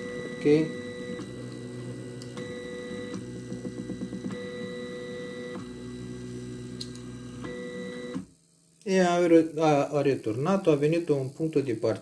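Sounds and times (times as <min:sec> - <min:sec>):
stepper motors whining: 0:00.0 - 0:08.2.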